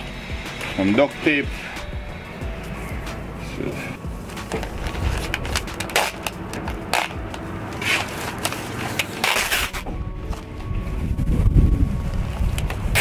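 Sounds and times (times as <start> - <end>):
duct tape tearing off roll: 4.4 - 9.9, 12.5 - 13.0.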